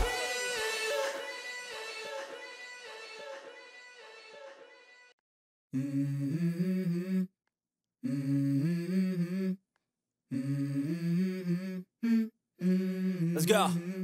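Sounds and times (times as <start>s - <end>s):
hummed vocal phrases: 10.3s - 14.0s.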